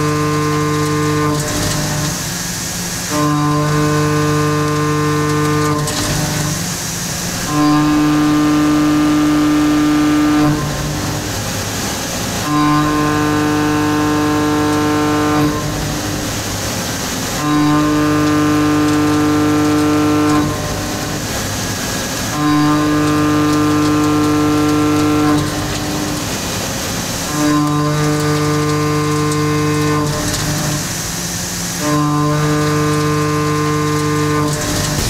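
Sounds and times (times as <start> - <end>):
milling cutter cutting steel: 33.8 - 35.0.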